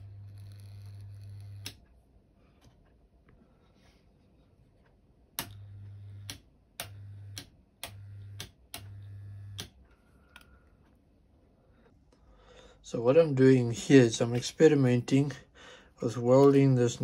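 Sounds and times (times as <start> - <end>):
spot welder mains hum: 0.0 - 2.0, 5.4 - 9.9.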